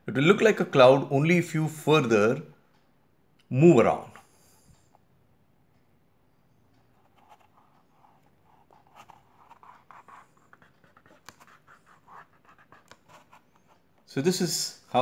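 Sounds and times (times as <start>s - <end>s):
fingertips rubbing paint on paper: 7.1s - 13.9s.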